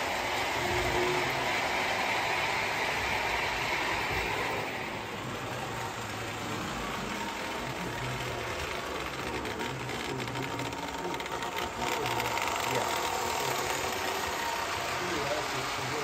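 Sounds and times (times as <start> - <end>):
toy train electric motor whirring: 0.0 - 16.0
metal wheels rolling on rails: 4.2 - 16.0.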